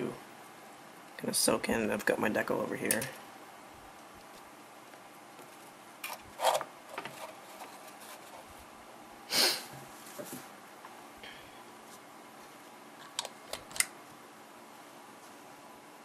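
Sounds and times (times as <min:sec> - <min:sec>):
room hiss: 0:00.0 - 0:16.0
short loud hiss: 0:09.3 - 0:09.7.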